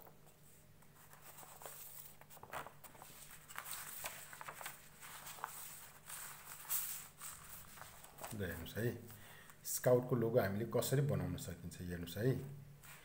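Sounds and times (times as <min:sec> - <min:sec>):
paper sheets rustling and sliding: 0:00.2 - 0:08.8, 0:12.8 - 0:13.0.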